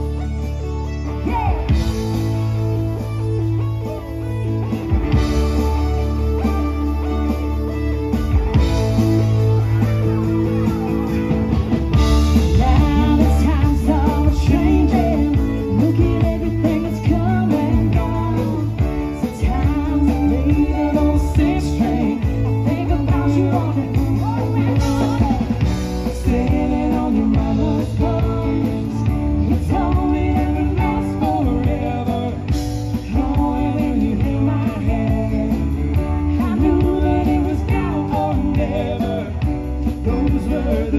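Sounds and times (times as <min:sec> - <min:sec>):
live rock band playing: 0:00.0 - 0:40.9
woman singing: 0:12.4 - 0:32.4, 0:33.0 - 0:39.3.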